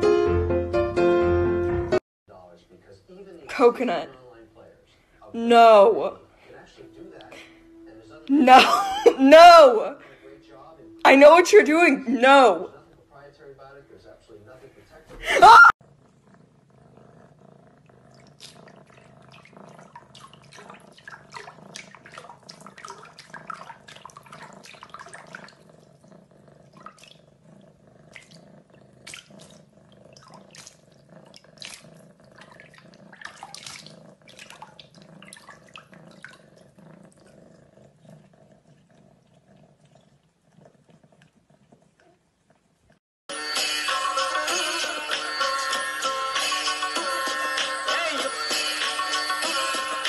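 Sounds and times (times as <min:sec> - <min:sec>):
cat splashing water in sink: 0:18.0 - 0:25.9, 0:26.6 - 0:27.4, 0:28.1 - 0:28.4, 0:29.0 - 0:37.4.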